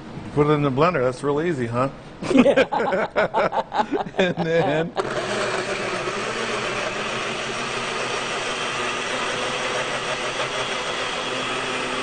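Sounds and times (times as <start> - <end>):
blender running: 4.9 - 12.0.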